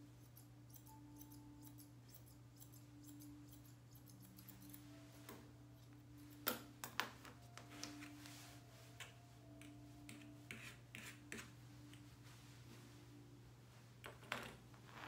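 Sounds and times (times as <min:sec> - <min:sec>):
scissors snipping hair: 0:00.0 - 0:04.9
low steady hum: 0:00.0 - 0:15.0.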